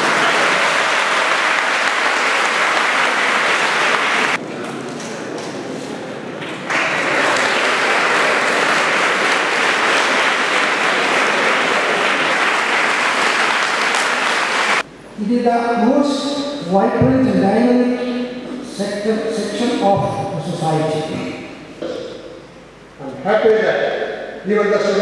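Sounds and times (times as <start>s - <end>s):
audience applauding: 0.0s - 4.4s, 6.4s - 14.8s.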